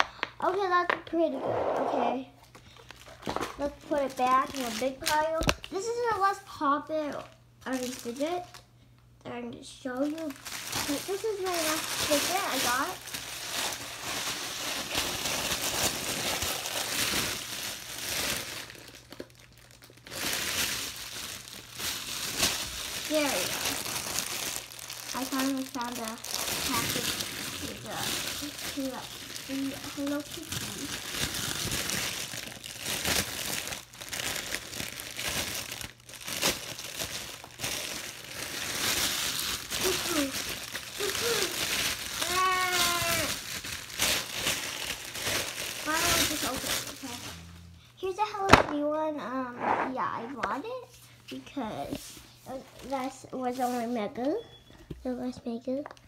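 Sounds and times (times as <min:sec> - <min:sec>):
plastic packaging crinkling: 0:02.4 - 0:08.7, 0:09.7 - 0:47.7.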